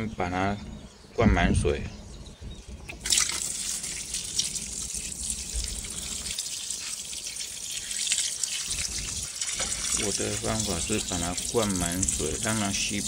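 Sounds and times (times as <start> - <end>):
water pouring into flower pot: 2.9 - 13.0.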